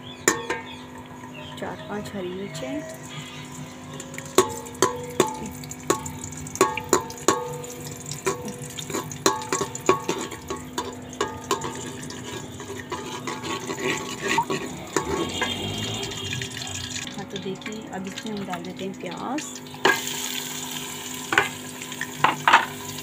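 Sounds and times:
metal spoon knocking on pot: 0.2 - 0.8, 4.0 - 12.2, 12.9 - 16.4, 22.2 - 22.7
sizzling in hot oil: 2.2 - 23.0.

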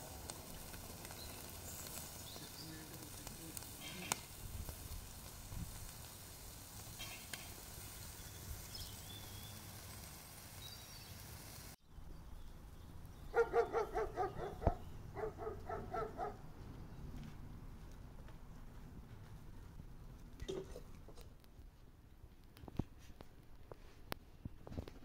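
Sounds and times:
chicken sizzling on grill: 0.0 - 11.8
animal yapping: 13.3 - 16.4.

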